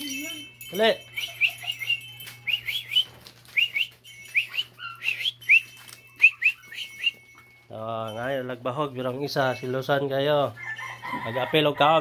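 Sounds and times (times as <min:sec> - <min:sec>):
chicks peeping: 0:01.1 - 0:07.4.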